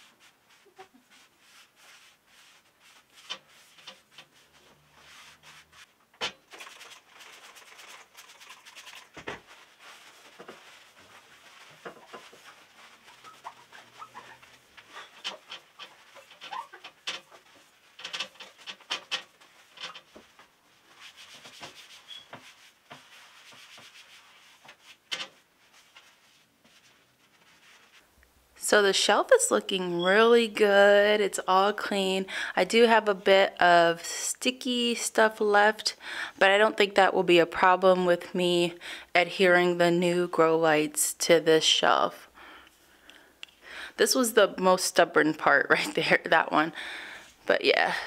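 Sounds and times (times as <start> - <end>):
cloth scrubbing glass: 0.0 - 28.0.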